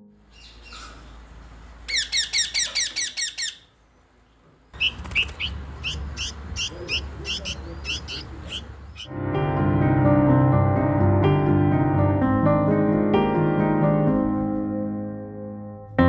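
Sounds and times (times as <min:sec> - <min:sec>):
parakeets screeching: 0:00.3 - 0:01.2, 0:01.9 - 0:03.8, 0:04.8 - 0:09.1
baby bird chirping: 0:01.9 - 0:03.8, 0:04.8 - 0:09.1.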